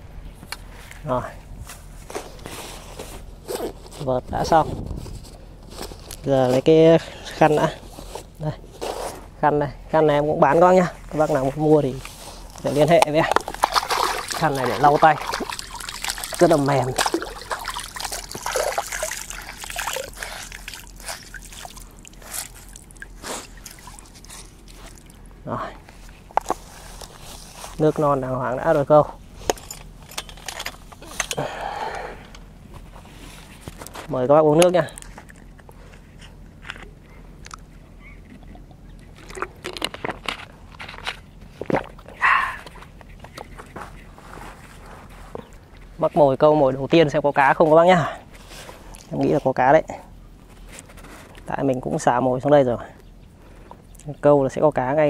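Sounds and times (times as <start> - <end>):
water trickling and splashing: 12.4 - 27.9
water dripping: 13.1 - 25.3.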